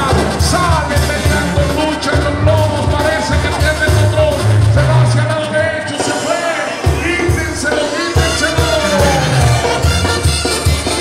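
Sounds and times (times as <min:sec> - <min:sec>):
person singing: 0:06.1 - 0:10.1
heavy bass line: 0:07.1 - 0:10.8.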